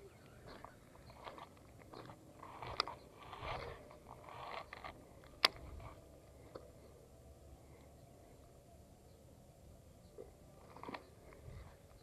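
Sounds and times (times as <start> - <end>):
crunchy handling scrapes: 0.5 - 6.1.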